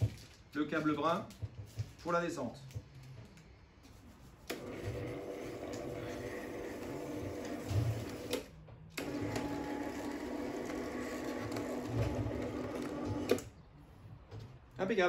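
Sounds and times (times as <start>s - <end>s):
roller shutter motor humming: 4.5s - 13.6s.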